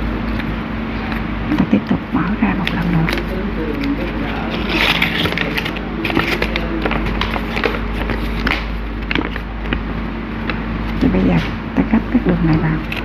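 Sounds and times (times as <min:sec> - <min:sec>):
low hum: 0:00.0 - 0:13.0
paper rustling and crinkling: 0:02.6 - 0:11.5.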